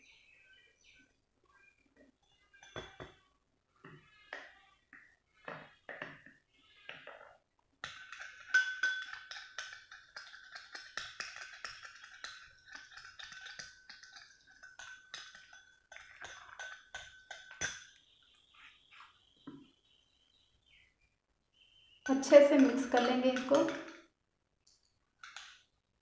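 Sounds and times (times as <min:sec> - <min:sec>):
metal spoon clinking glass bowl: 0:02.5 - 0:03.2, 0:07.0 - 0:18.0, 0:22.0 - 0:24.1.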